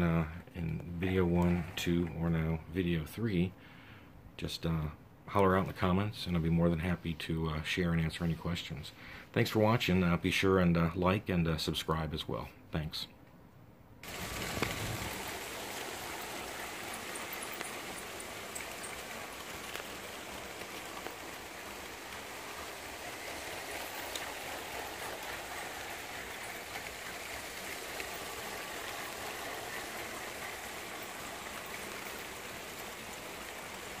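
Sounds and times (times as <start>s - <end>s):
toy train wheels clattering: 14.0s - 34.0s
faint clicks: 16.2s - 22.2s, 23.3s - 33.6s.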